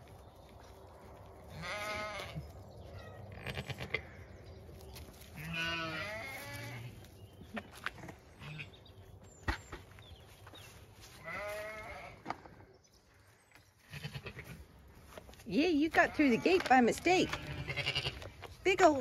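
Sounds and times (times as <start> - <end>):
sheep bleating: 1.5 - 2.4, 5.4 - 6.9, 11.2 - 12.2, 13.9 - 14.6, 15.9 - 18.2.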